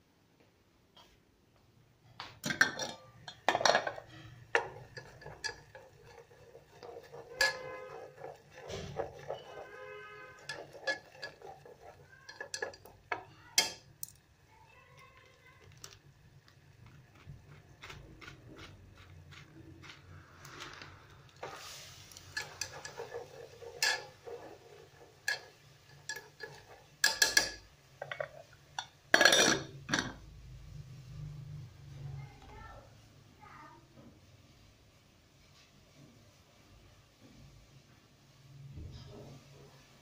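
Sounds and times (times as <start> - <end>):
metal lid clattering onto pot: 2.4 - 9.6, 10.4 - 13.8, 22.4 - 30.2.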